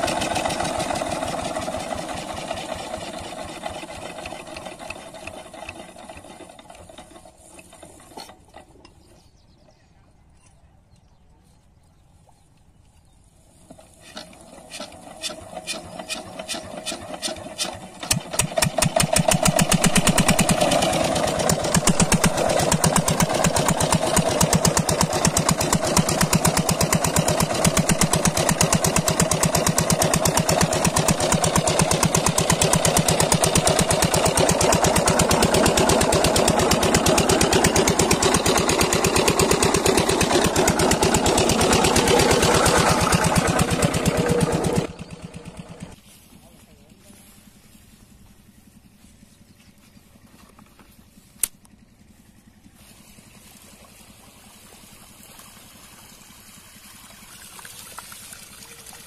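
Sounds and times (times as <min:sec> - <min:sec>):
diesel engine hand-cranked and running: 0:00.0 - 0:09.6, 0:13.6 - 0:46.0.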